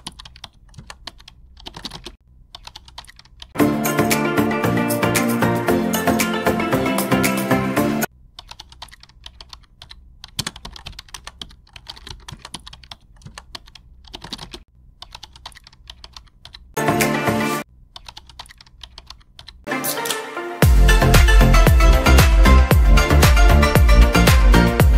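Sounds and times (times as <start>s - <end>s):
keyboard typing: 0.0s - 7.7s, 8.3s - 17.2s, 17.9s - 20.3s
music: 3.6s - 8.1s, 16.8s - 17.6s, 19.7s - 24.9s.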